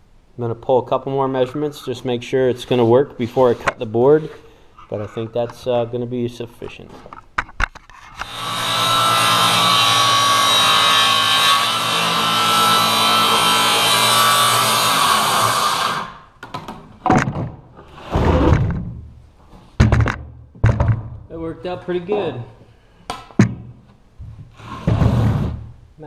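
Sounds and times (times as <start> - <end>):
circular saw cutting wood: 8.2 - 16.2
knocks and thumps: 16.4 - 19.1, 19.8 - 21.3, 23.1 - 25.7.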